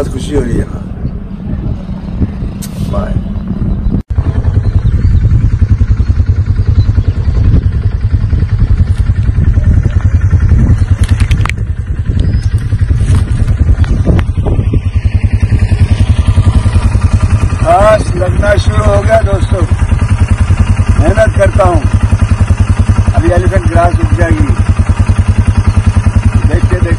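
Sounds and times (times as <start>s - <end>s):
engine chugging: 0.0s - 26.9s.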